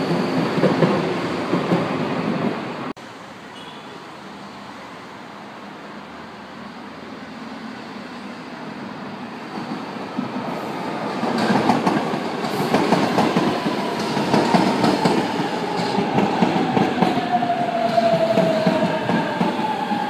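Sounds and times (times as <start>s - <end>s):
train wheels clicking over rail joints: 11.2s - 17.2s.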